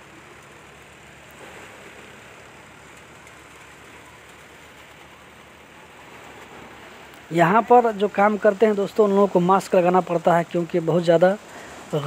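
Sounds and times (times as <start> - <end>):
engine drone: 0.0 - 12.0.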